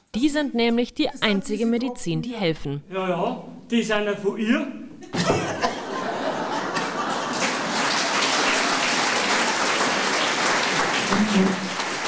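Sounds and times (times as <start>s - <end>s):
audience applauding: 5.9s - 12.0s.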